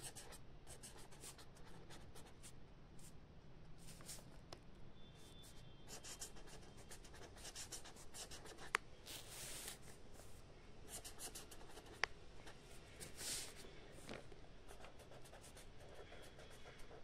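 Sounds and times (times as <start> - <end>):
pen scratching on paper: 0.0 - 2.5, 5.9 - 9.8, 10.9 - 13.5, 14.7 - 17.0.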